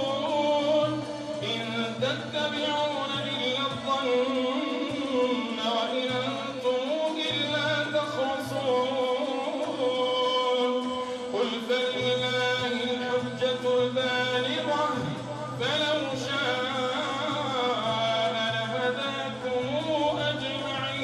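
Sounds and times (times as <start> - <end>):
man chanting recitation: 0.0 - 21.0.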